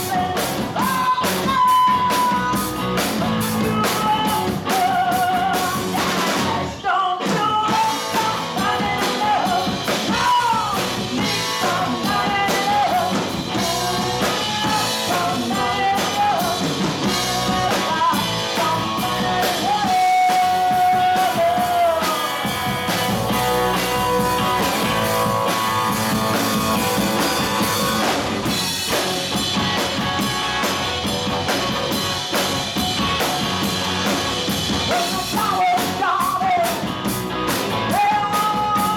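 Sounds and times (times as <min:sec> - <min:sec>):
electric bass: 0:00.0 - 0:06.8, 0:07.6 - 0:38.9
woman singing: 0:00.0 - 0:22.6, 0:34.9 - 0:36.9, 0:37.9 - 0:38.9
drum kit: 0:00.0 - 0:38.9
electric guitar: 0:00.0 - 0:38.9.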